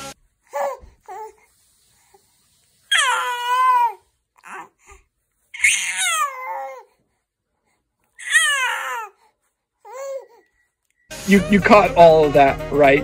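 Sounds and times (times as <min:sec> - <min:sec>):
infant calling: 0:02.9 - 0:05.0, 0:05.6 - 0:06.9, 0:08.2 - 0:09.2.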